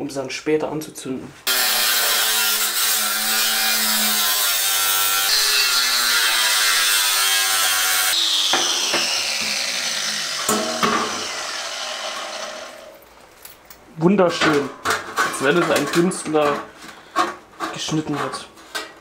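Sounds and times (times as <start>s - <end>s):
angle grinder cutting steel: 1.5s - 13.0s
metal sheet knocks: 10.5s - 11.3s.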